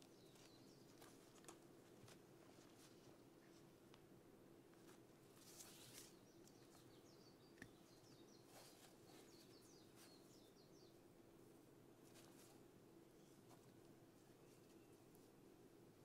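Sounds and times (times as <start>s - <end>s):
bird chirping: 0.0s - 1.3s, 5.7s - 11.0s
fabric and ribbons rustling: 0.0s - 4.0s, 4.7s - 6.9s, 8.4s - 10.6s, 11.9s - 15.4s
low steady hum: 0.0s - 16.0s.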